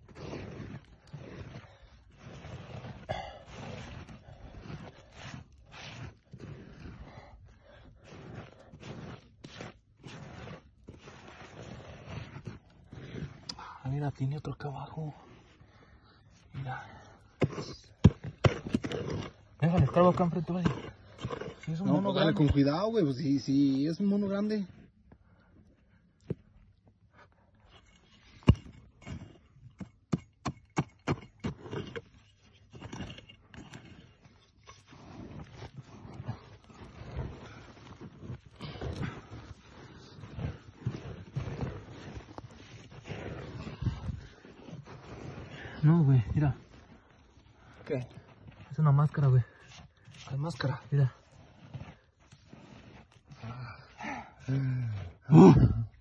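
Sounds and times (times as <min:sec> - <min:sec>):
hand scraping dry soil: 0:00.0 - 0:15.8, 0:16.4 - 0:25.0, 0:27.6 - 0:56.0
pick hammer chopping soil: 0:17.4 - 0:21.7, 0:28.4 - 0:32.0.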